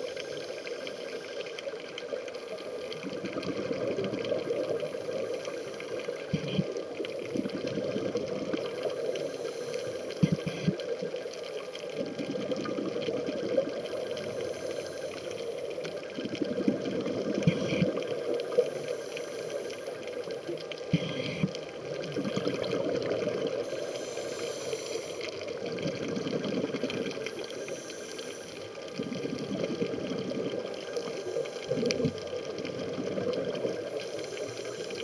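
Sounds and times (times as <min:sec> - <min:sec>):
exhaled bubbles rising: 0:02.8 - 0:05.0, 0:06.2 - 0:09.0, 0:11.8 - 0:14.4, 0:16.0 - 0:18.6, 0:20.9 - 0:23.6, 0:25.4 - 0:27.3, 0:28.9 - 0:34.0
regulator breathing underwater: 0:09.0 - 0:10.8, 0:14.1 - 0:15.7, 0:17.3 - 0:20.0, 0:20.9 - 0:21.6, 0:23.6 - 0:25.6, 0:26.8 - 0:29.9, 0:33.6 - 0:35.0.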